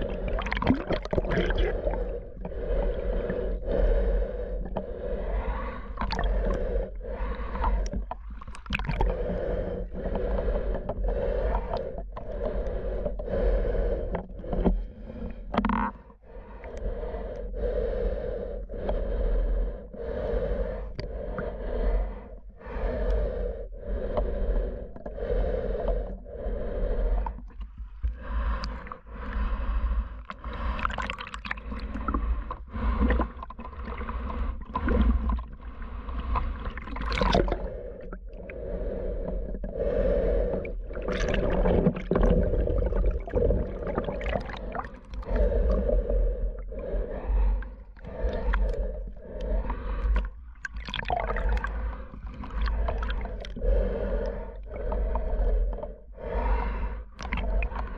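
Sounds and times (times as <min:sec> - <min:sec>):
water gurgling: 0:00.0 - 0:10.5, 0:30.4 - 0:39.1, 0:39.8 - 0:55.6
breathing through snorkel: 0:00.0 - 0:57.9.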